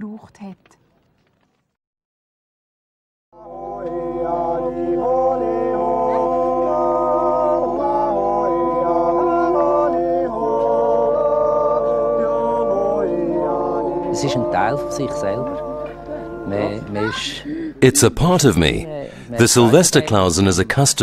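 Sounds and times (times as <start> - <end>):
group yodeling a cappella: 3.4 - 17.6.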